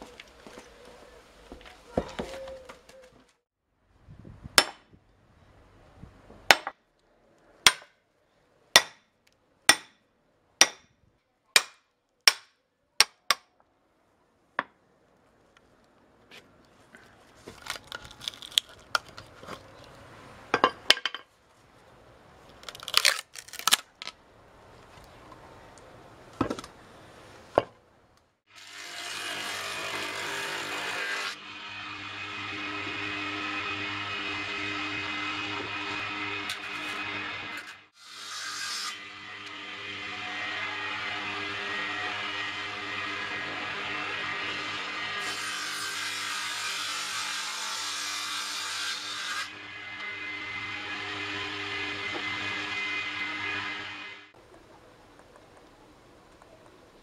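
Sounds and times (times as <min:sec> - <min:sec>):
hatchet splitting wood: 0:06.5 - 0:06.7, 0:07.6 - 0:07.9, 0:08.8 - 0:09.0, 0:09.7 - 0:10.0, 0:10.6 - 0:10.9, 0:11.6 - 0:13.5
wood cracking: 0:17.4 - 0:20.0, 0:22.5 - 0:24.2.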